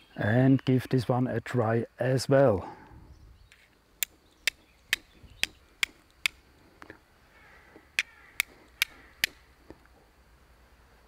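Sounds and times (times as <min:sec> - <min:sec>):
steel striker hitting flint: 0:04.0 - 0:06.4, 0:07.9 - 0:09.5.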